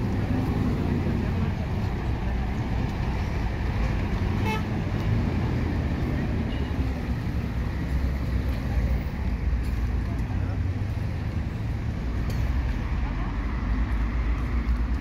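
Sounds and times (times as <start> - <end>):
rumble of passing vehicles: 0.0 - 15.0
vehicle horn toot: 4.4 - 4.7.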